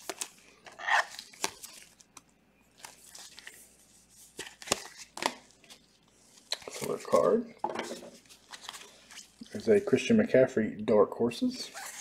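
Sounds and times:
plastic card sleeves crinkling: 0.0 - 7.4, 8.0 - 10.1.

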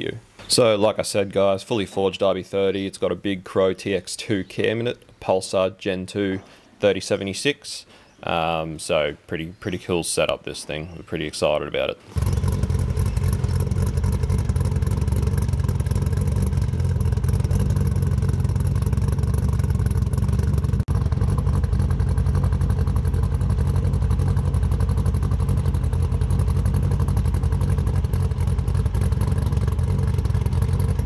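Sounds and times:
car engine running: 12.1 - 31.0.

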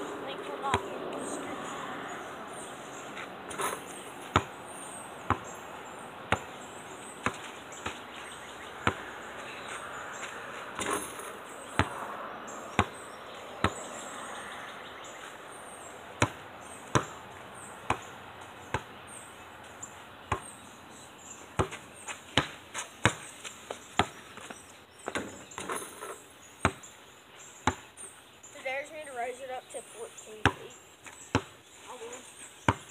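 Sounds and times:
basketball bouncing on hard ground: 0.4 - 1.2, 3.1 - 12.1, 12.7 - 14.1, 16.2 - 20.6, 21.5 - 26.9, 27.6 - 28.1, 30.3 - 32.0, 32.6 - 32.9.

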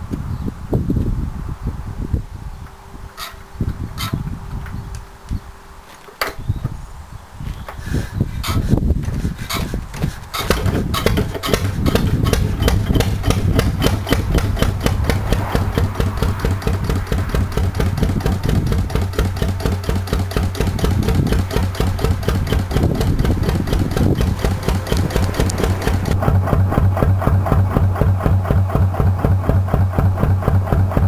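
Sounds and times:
diesel engine running: 7.7 - 31.0.

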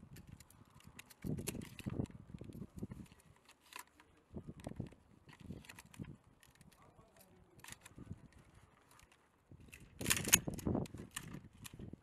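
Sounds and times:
shotgun shells clicking into magazine: 0.1 - 6.8, 9.6 - 11.8.

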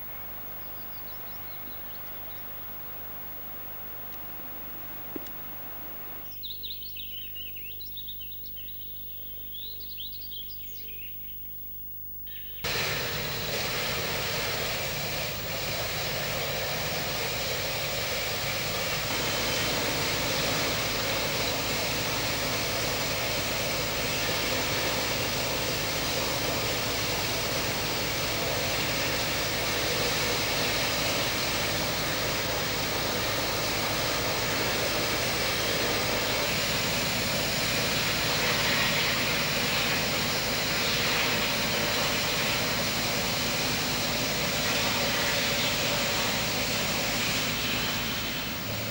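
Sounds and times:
steady rushing noise: 12.7 - 48.9.

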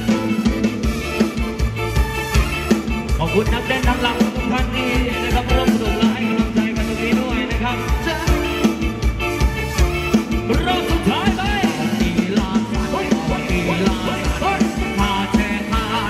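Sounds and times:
drum kit beat: 0.0 - 16.0
electric guitars: 0.0 - 16.0
person singing: 3.2 - 8.8, 10.5 - 16.0.

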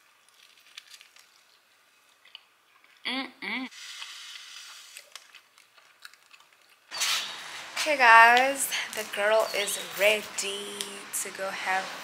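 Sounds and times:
closed-mouth hums: 3.0 - 3.7
person chewing food: 4.0 - 6.9.

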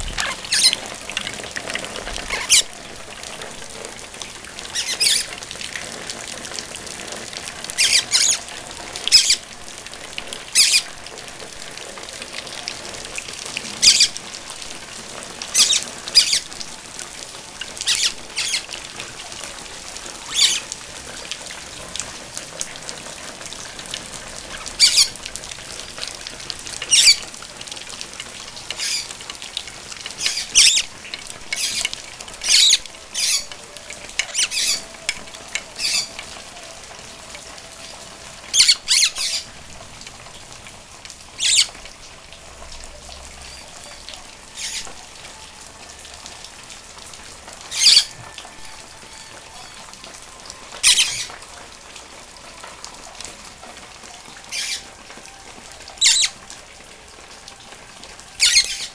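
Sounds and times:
rain falling: 0.0 - 58.9
parrot squawking: 0.1 - 0.9, 2.3 - 2.7, 4.7 - 5.3, 7.7 - 9.5, 10.5 - 10.9, 13.7 - 14.2, 15.4 - 16.5, 17.6 - 18.7, 20.2 - 20.8, 24.5 - 25.2, 26.8 - 27.3, 28.7 - 29.2, 30.2 - 30.9, 31.5 - 33.5, 34.2 - 35.0, 35.8 - 36.2, 38.5 - 39.5, 41.4 - 41.8, 44.6 - 44.9, 47.7 - 48.2, 50.8 - 51.4, 54.5 - 54.9, 56.0 - 56.4, 58.4 - 58.9.

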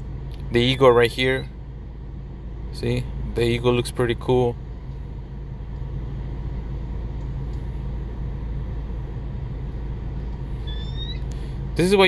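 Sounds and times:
car engine idling: 0.0 - 12.0
short high-pitched call: 10.6 - 11.2.

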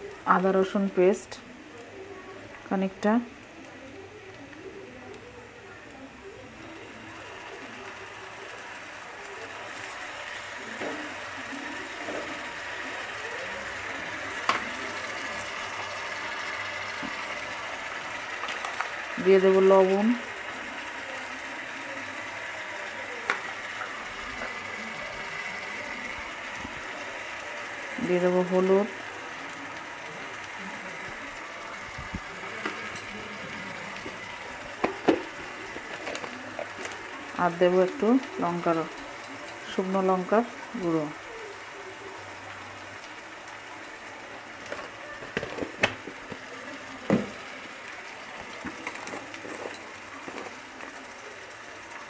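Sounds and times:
vegetables sizzling in hot oil: 0.0 - 52.0
spatula stirring in a pan: 6.1 - 52.0.

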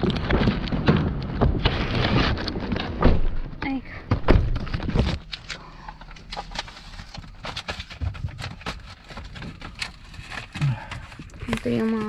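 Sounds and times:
small irregular clicks and crackles: 4.8 - 12.0.

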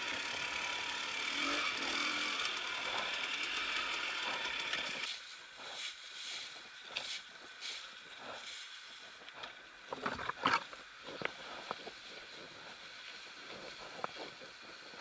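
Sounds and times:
motorcycle engine running: 0.0 - 7.1.

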